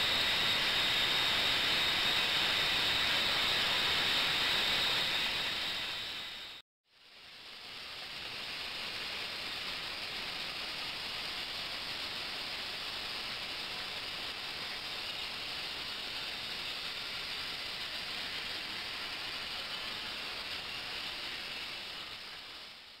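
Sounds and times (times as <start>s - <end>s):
ultrasonic bath hissing: 0.0s - 23.0s
liquid circulating through hoses: 7.0s - 23.0s.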